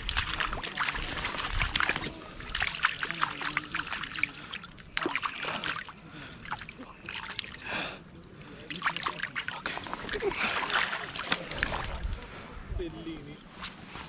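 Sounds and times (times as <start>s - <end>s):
fish splashing in net: 0.0s - 7.6s
water dripping: 0.0s - 7.7s.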